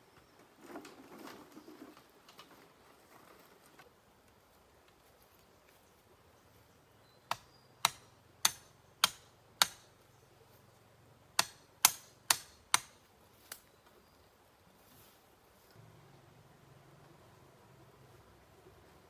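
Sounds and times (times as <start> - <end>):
tool striking bamboo: 7.3 - 10.0, 11.3 - 13.1.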